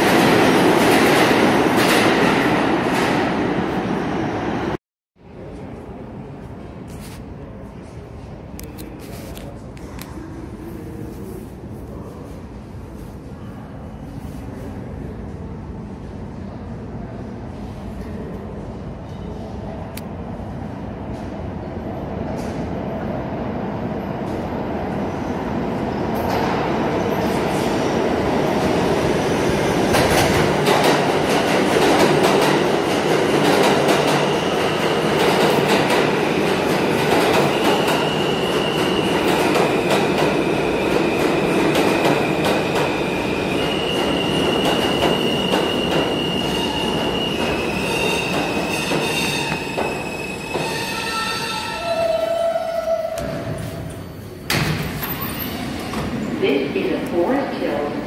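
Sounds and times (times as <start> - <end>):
train wheels rumbling on rail: 24.0 - 58.0
high wheel squeal: 43.6 - 53.2.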